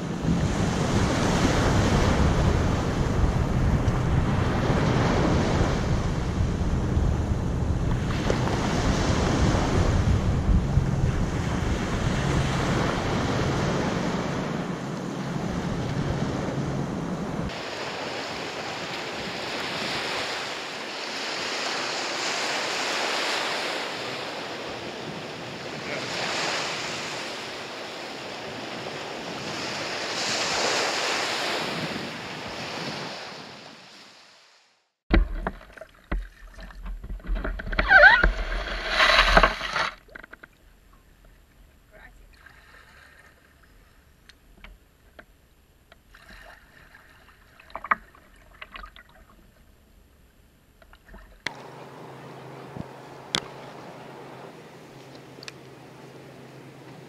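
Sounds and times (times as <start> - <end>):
small waves breaking on beach: 0.0 - 7.2, 8.0 - 40.3, 42.0 - 44.1, 46.1 - 49.4
wind rumbling on microphone: 0.0 - 33.8, 35.1 - 42.3
plastic kayak knocking: 35.1 - 40.6.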